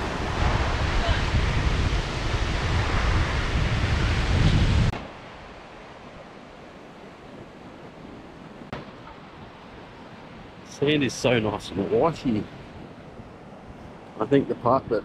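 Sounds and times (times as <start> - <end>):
surf breaking: 0.0 - 6.4
wind buffeting microphone: 0.0 - 15.0.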